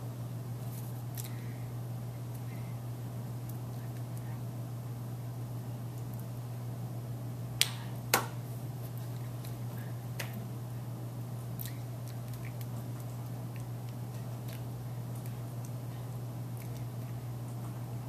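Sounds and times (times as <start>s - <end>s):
low electrical hum: 0.0s - 18.0s
hands slapping together: 7.6s - 8.4s, 10.2s - 10.4s.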